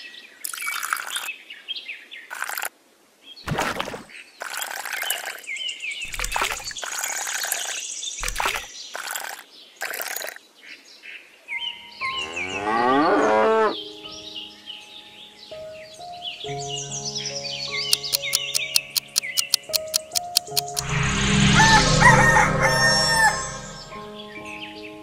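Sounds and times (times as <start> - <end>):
small birds chirping: 0.4 - 1.3, 4.1 - 10.8, 16.4 - 20.8
cow mooing: 12.2 - 13.8.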